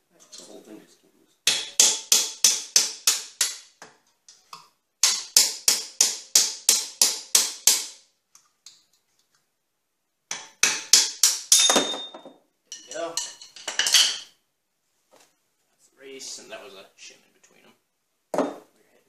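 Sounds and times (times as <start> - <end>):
hammer striking steel punch: 1.5 - 3.6.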